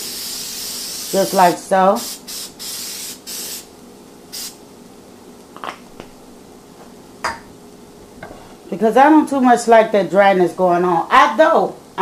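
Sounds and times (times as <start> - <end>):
cooking spray hissing: 0.0 - 3.7, 4.3 - 4.6.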